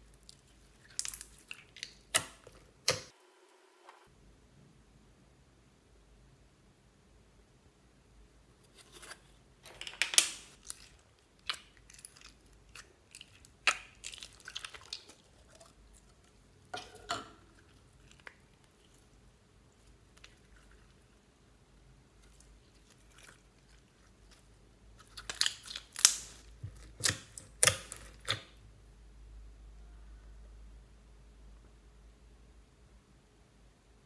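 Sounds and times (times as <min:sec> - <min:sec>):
slime squishing: 0:00.0 - 0:03.1, 0:08.7 - 0:28.6
plastic jar clicks and crackles: 0:09.6 - 0:10.8.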